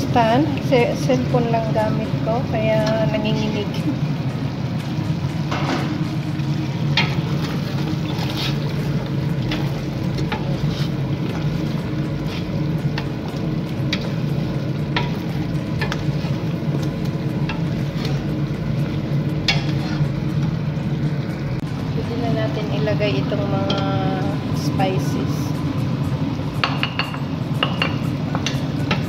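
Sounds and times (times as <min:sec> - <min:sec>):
food frying in a pot: 0:00.0 - 0:29.0
steady low hum: 0:00.0 - 0:29.0.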